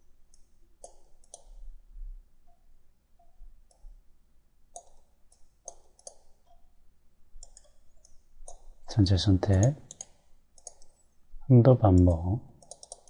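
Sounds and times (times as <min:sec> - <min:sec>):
computer mouse clicking: 0:00.3 - 0:01.7, 0:03.2 - 0:04.0, 0:04.7 - 0:06.6, 0:07.4 - 0:08.8, 0:09.6 - 0:11.2, 0:12.0 - 0:13.0.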